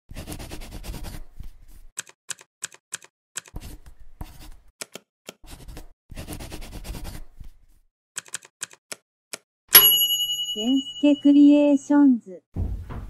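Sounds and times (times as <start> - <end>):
keyboard key clicks: 8.2 - 9.5.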